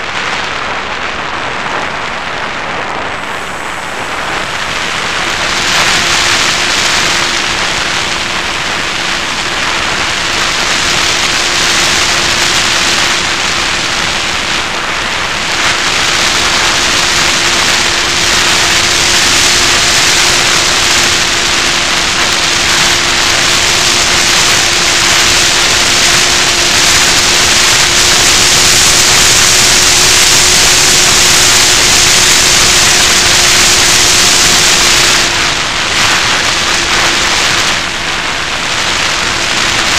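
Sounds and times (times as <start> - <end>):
motor and propeller hum: 0.0 - 39.9
wind rushing over microphone: 0.0 - 39.9.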